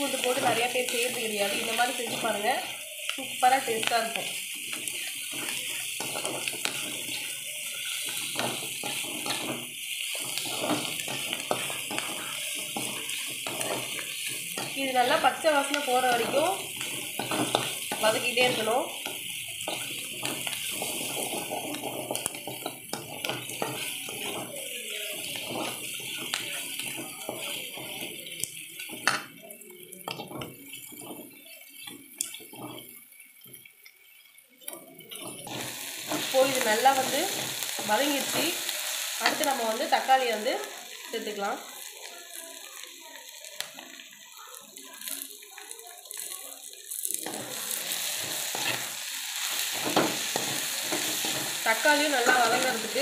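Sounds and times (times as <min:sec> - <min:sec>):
onions sizzling in oil: 0:00.0 - 0:53.0
spatula scraping metal pan: 0:03.8 - 0:29.2.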